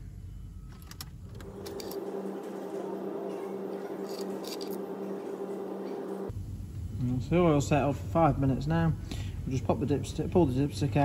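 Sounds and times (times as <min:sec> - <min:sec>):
car engine idling: 0:01.4 - 0:06.3.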